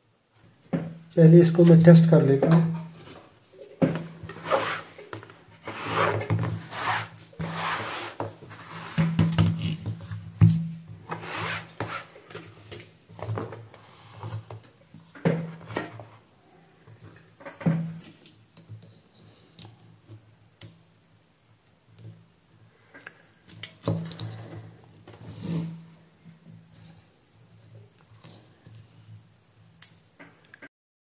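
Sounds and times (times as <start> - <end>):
cloth rubbing: 4.3 - 9.1, 11.1 - 12.2.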